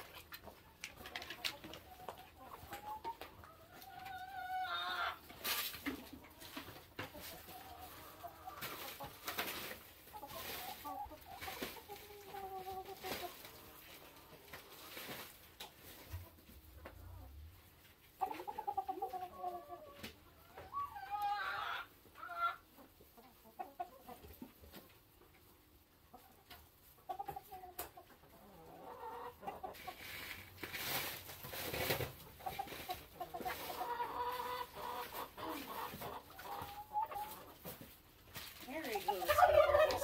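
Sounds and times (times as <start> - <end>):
hens clucking: 0.0 - 40.0
rustling: 5.2 - 16.7, 29.7 - 40.0.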